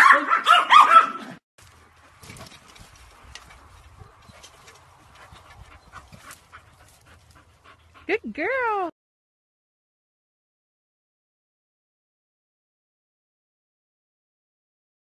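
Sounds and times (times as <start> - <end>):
puppies yapping: 0.0 - 7.6.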